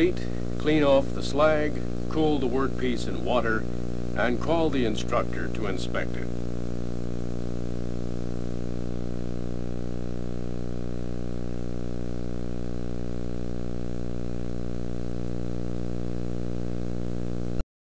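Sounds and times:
electrical hum: 0:00.0 - 0:17.6
thin high whine: 0:00.0 - 0:17.6.

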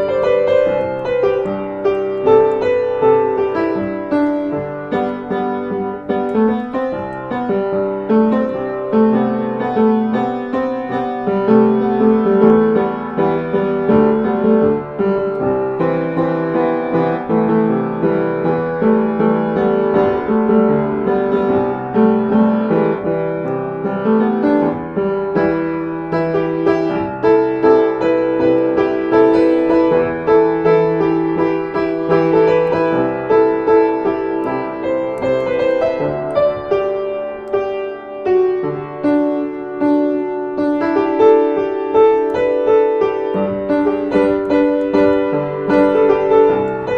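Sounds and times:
piano music: 0:00.0 - 0:46.9.

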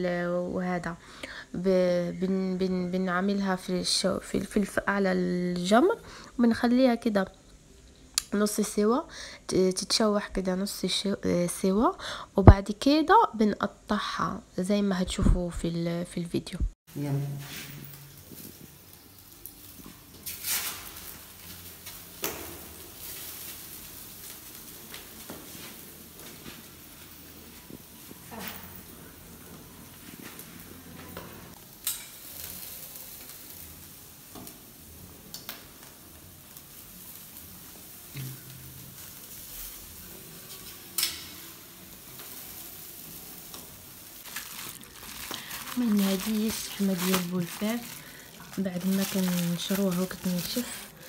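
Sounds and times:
meat sizzling over charcoal: 0:00.0 - 0:16.1, 0:16.9 - 0:51.0
grill basket knocks: 0:22.2 - 0:22.8.

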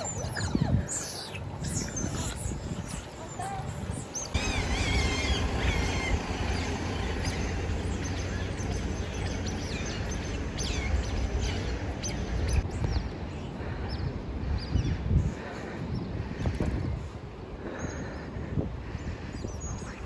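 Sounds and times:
high chirping calls: 0:00.0 - 0:13.0
wind buffeting microphone: 0:00.0 - 0:20.0.

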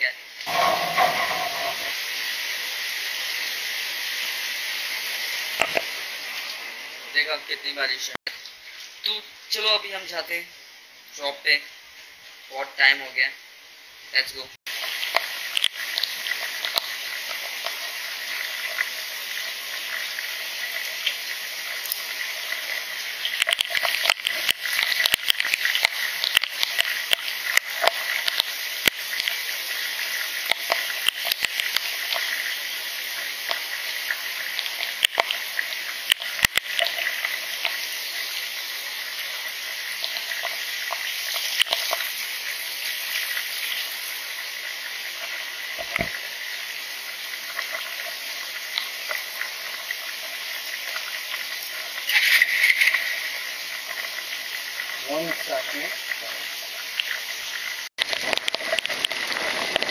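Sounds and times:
heavy rain falling: 0:00.4 - 0:02.4, 0:58.0 - 0:59.9
raindrops ticking close by: 0:19.8 - 0:32.4, 0:33.3 - 0:37.8, 0:58.0 - 0:59.9.

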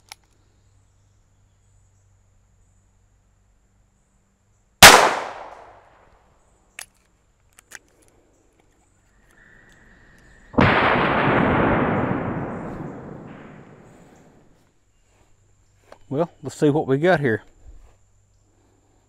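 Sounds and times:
gunshot crack: 0:04.8 - 0:05.7, 0:10.6 - 0:14.5
slowed-down gunshot blast: 0:04.8 - 0:05.7, 0:10.6 - 0:14.5.

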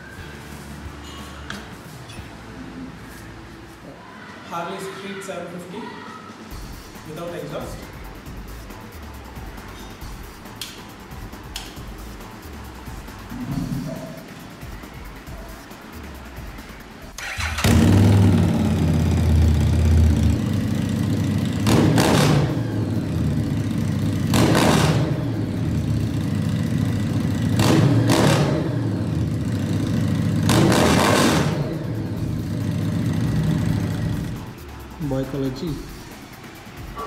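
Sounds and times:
motorcycle engine idling and revving: 0:11.1 - 0:37.0
motorcycle engine starting: 0:17.1 - 0:35.0.

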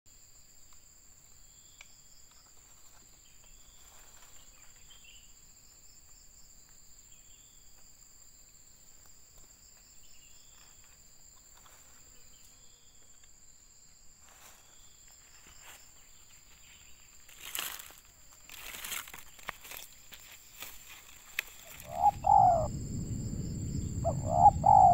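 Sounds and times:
rustle in dry leaves: 0:02.5 - 0:05.0, 0:14.2 - 0:24.2
high-pitched insect drone: 0:20.6 - 0:24.9.

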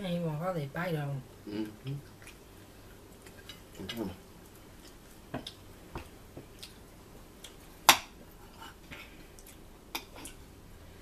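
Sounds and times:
chewing: 0:01.5 - 0:05.7, 0:06.4 - 0:07.8, 0:08.4 - 0:10.4.

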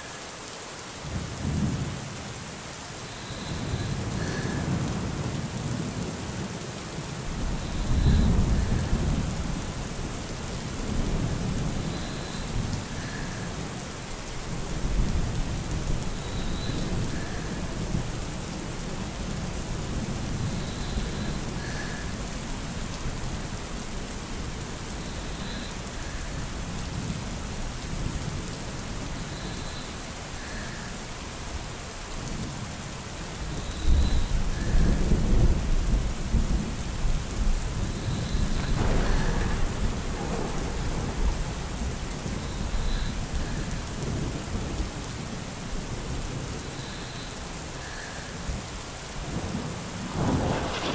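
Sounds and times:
steady rain: 0:00.0 - 0:50.9
thunder rumbling: 0:07.3 - 0:13.5, 0:33.8 - 0:44.9, 0:49.2 - 0:50.9
thunder crack: 0:38.4 - 0:41.7, 0:50.0 - 0:50.9.

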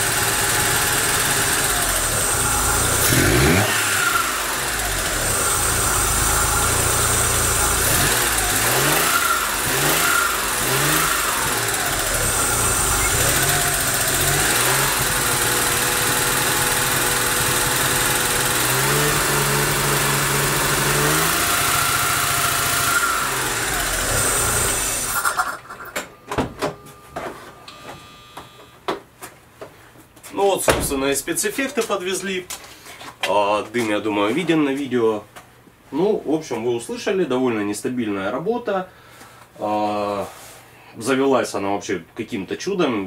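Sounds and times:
small car engine revving: 0:00.0 - 0:25.9.

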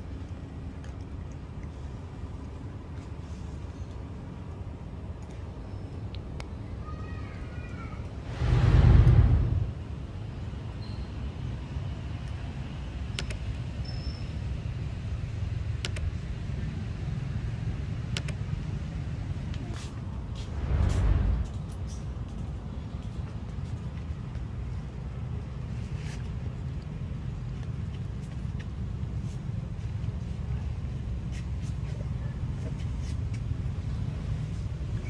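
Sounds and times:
low outdoor rumble: 0:00.0 - 0:35.0
sharp clicks: 0:13.1 - 0:13.5, 0:15.8 - 0:16.1, 0:18.1 - 0:18.4.

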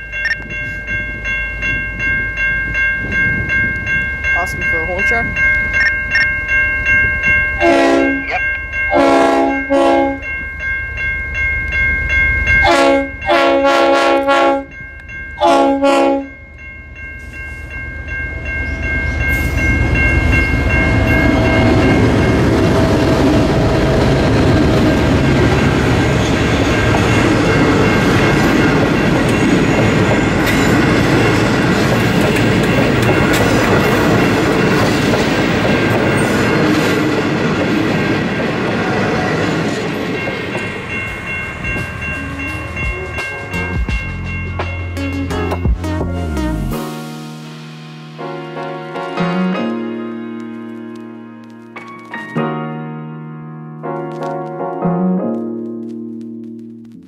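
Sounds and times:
locomotive horn blasts: 0:07.6 - 0:10.3, 0:12.6 - 0:14.7, 0:15.4 - 0:16.3
train wheels rumbling on rails: 0:17.2 - 0:45.8.

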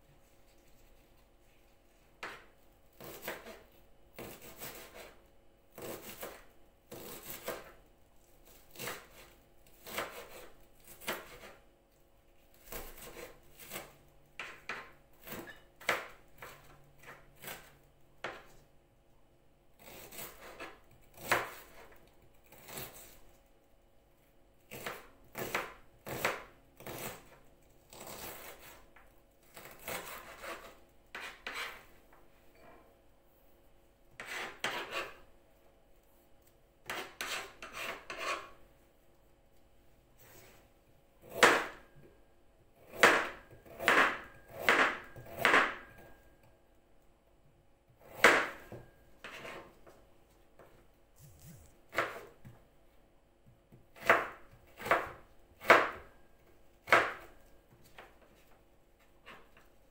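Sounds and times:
knife chopping on plastic board: 0:02.2 - 0:07.8, 0:08.5 - 0:11.6, 0:12.6 - 0:18.6, 0:19.8 - 0:23.1, 0:24.7 - 0:28.8, 0:29.5 - 0:31.8, 0:34.2 - 0:35.2, 0:36.8 - 0:38.6, 0:41.3 - 0:41.9, 0:42.8 - 0:46.1, 0:48.0 - 0:50.0, 0:50.6 - 0:52.7, 0:53.4 - 0:56.2, 0:56.8 - 0:58.6.

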